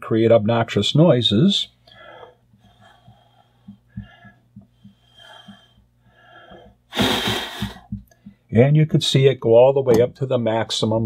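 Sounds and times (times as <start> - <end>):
breath blowing into microphone: 6.9 - 8.0.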